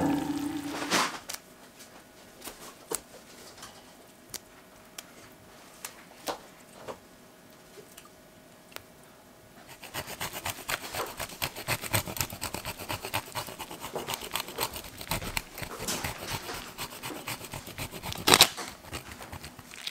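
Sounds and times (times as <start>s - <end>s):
cheese grating on metal grater: 9.7s - 19.9s.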